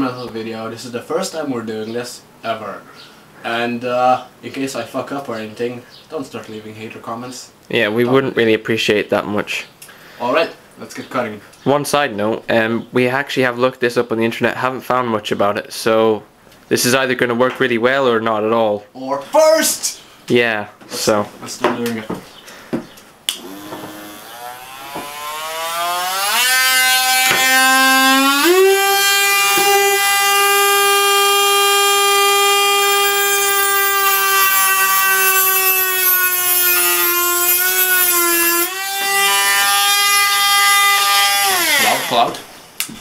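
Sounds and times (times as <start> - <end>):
rotary tool whining: 23.3 - 42.2.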